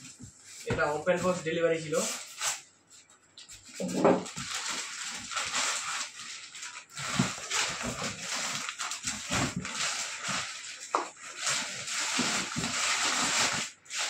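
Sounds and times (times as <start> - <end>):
plastic wrap rustling: 0.0 - 14.0
cardboard carton scraping: 6.9 - 14.0.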